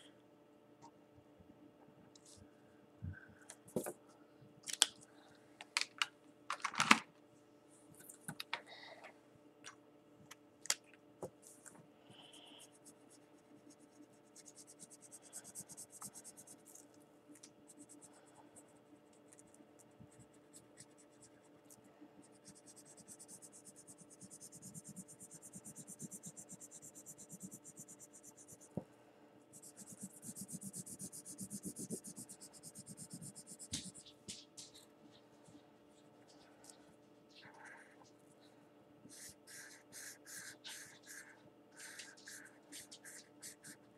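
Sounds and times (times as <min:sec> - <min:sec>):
faint steady hum: 0:00.0 - 0:43.9
felt-tip marker scratching on paper: 0:12.6 - 0:16.8, 0:22.2 - 0:28.7, 0:29.5 - 0:34.8, 0:39.1 - 0:43.9.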